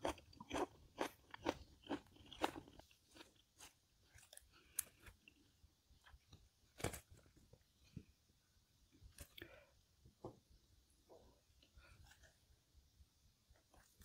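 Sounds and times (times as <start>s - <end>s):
chewing food: 0.0s - 6.4s.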